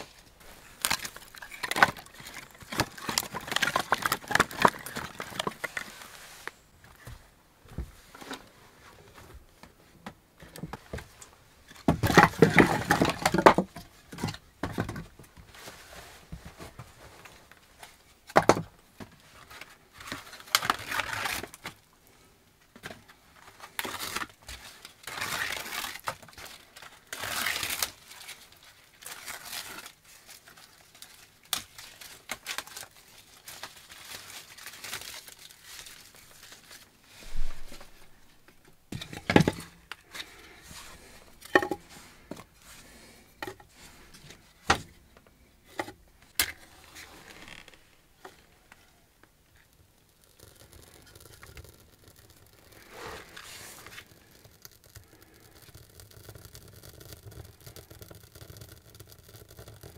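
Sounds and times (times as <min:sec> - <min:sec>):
bark tearing and rustling: 0:20.1 - 0:21.8, 0:23.8 - 0:38.0.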